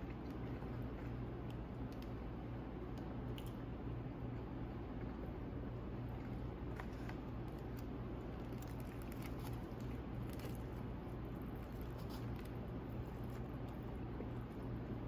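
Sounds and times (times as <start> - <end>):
paper wrapper rustling: 6.3 - 13.8.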